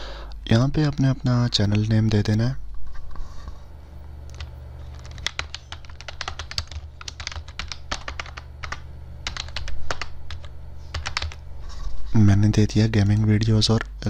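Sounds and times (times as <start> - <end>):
steady low hum: 0.0 - 14.0
typing on computer keyboard: 4.3 - 11.4.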